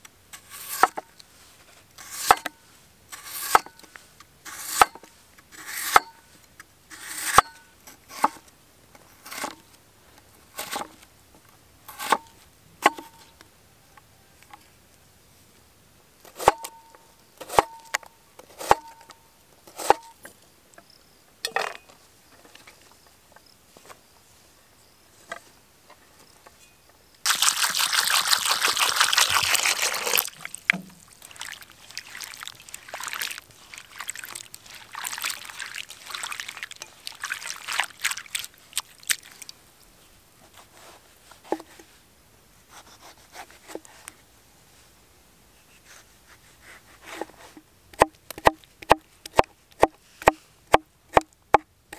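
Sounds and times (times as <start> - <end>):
water splashing in bowl: 27.2 - 39.6
water pouring into bowl: 27.3 - 39.5
knife chopping on wooden board: 48.0 - 51.3.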